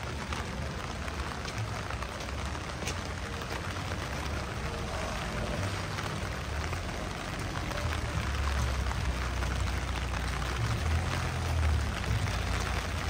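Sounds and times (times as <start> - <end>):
low traffic rumble: 0.0 - 13.0
rain on wet street: 0.0 - 13.0.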